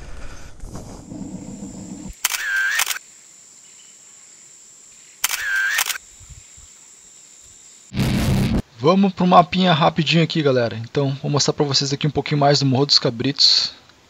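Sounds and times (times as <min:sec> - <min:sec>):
faint high whine: 0:01.0 - 0:08.6
camera shutter click and whirr: 0:02.1 - 0:03.0, 0:05.2 - 0:06.1
rushing noise: 0:07.9 - 0:08.6.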